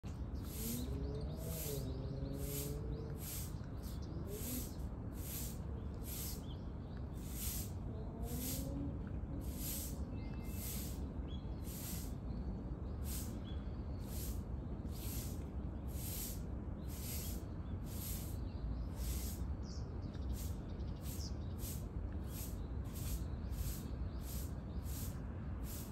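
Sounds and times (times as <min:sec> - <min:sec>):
steady low rumble: 0:00.0 - 0:25.9
low gliding animal calls: 0:00.4 - 0:05.6
raspy pulsing hiss: 0:00.4 - 0:06.5, 0:07.1 - 0:08.8, 0:09.4 - 0:12.2, 0:13.0 - 0:19.5, 0:20.2 - 0:25.9.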